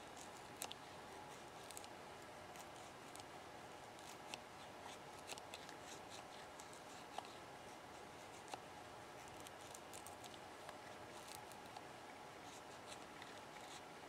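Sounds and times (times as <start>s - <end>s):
small ticks: 8.4s - 11.9s.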